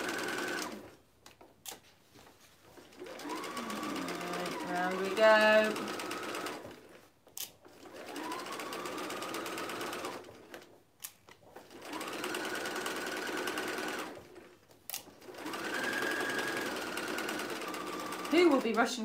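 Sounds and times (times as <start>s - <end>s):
sewing machine whine: 0.0s - 1.0s, 2.8s - 7.0s, 7.7s - 10.8s, 11.6s - 14.5s, 15.1s - 19.0s.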